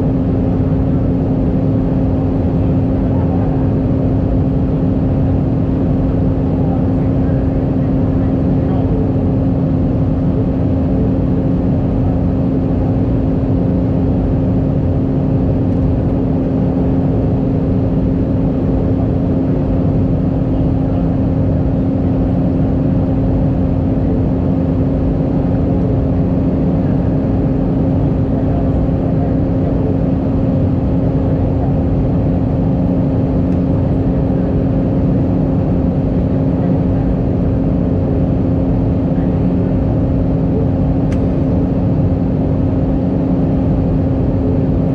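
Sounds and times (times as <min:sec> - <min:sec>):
constant low hum: 0:00.0 - 0:44.9
jet engine noise: 0:00.0 - 0:44.9
rush of air in aircraft cabin: 0:10.9 - 0:44.9.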